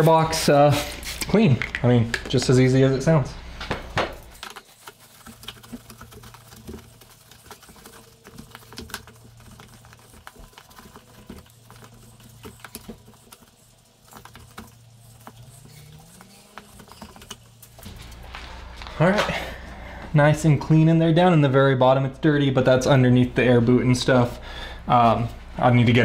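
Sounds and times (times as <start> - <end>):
rag wiping plastic box: 4.4 - 17.6.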